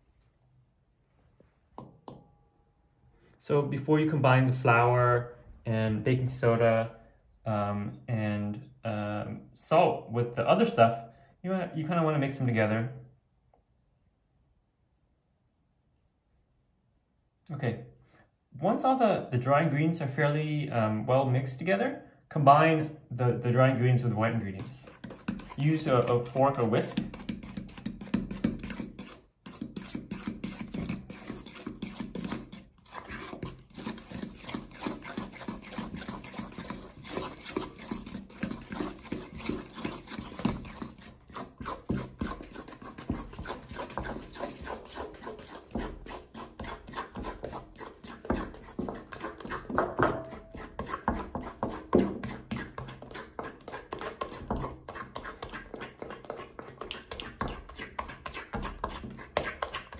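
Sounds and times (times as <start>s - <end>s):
fork beating batter in metal bowl: 1.8s - 2.2s, 24.0s - 59.9s.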